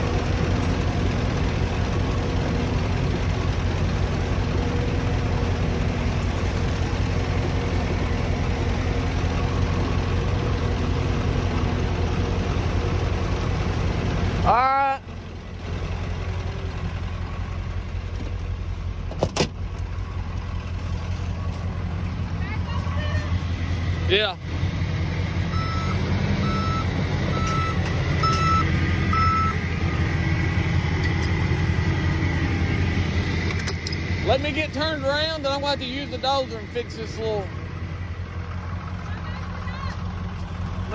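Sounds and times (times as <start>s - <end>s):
heavy diesel engine running: 0.0s - 40.9s
backup alarm beeping: 25.5s - 29.6s.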